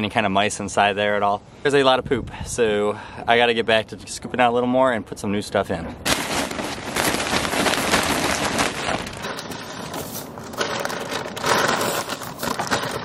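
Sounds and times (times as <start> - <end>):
straw rustling and crackling: 6.1 - 13.0.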